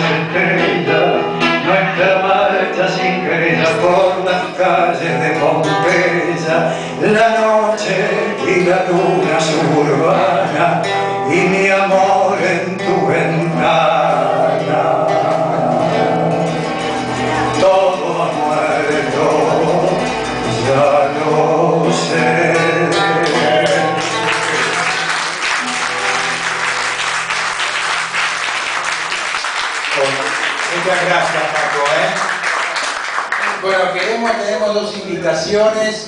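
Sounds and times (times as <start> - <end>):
man singing: 0.0 - 25.4
acoustic guitar: 0.0 - 36.0
audience applauding: 23.2 - 34.3.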